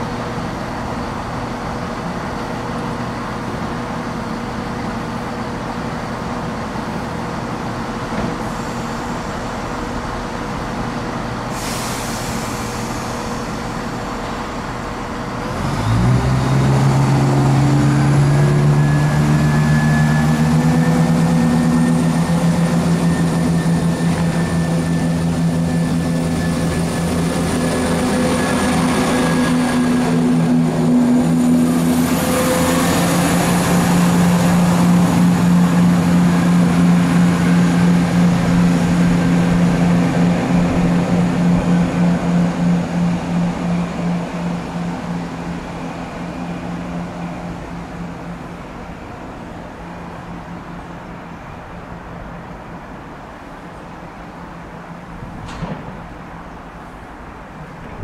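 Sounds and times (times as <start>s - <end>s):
diesel train engine running: 0.0s - 58.0s
hiss: 11.5s - 14.0s.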